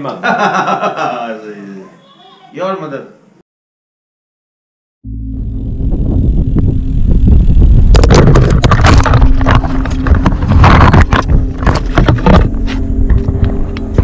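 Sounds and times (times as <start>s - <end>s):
bicycle rattling over dirt track: 7.8s - 12.5s.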